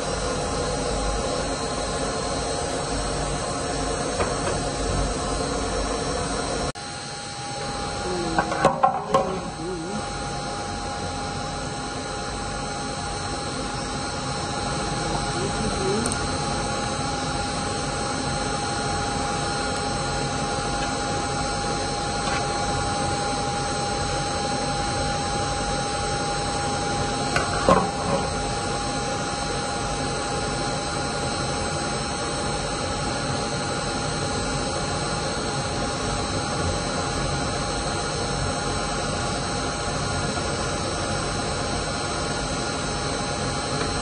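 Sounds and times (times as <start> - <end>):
machine whine: 0.0 - 44.0.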